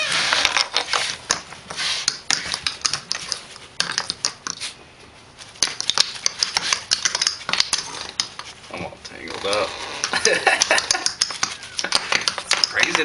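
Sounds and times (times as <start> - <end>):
kitten claws clicking on wooden floor: 2.1 - 4.6, 5.6 - 8.5, 9.5 - 13.0.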